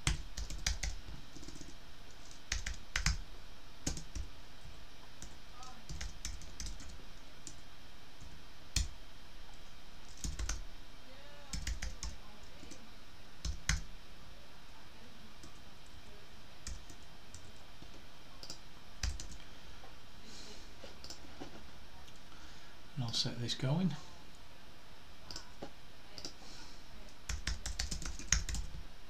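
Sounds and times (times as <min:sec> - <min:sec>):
computer keyboard typing: 0:00.0 - 0:03.2, 0:03.8 - 0:04.3, 0:05.2 - 0:07.6, 0:10.1 - 0:10.7, 0:11.5 - 0:12.8, 0:13.4 - 0:13.9, 0:16.6 - 0:19.4, 0:21.0 - 0:21.3, 0:26.2 - 0:26.4, 0:27.3 - 0:28.8.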